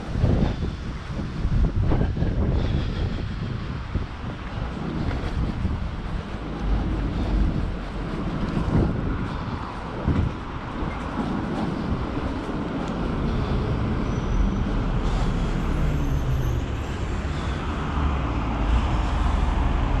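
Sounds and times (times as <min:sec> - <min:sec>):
electric wheelchair rolling: 0:03.9 - 0:17.6.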